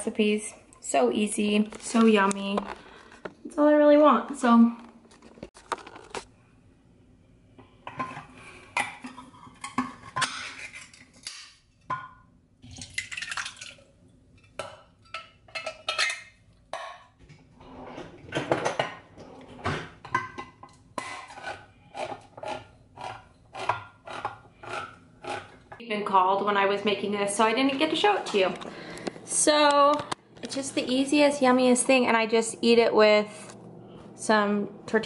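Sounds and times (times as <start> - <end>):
cans and dishes clattering: 7.9 - 12.2, 14.5 - 17.2, 18.3 - 25.8.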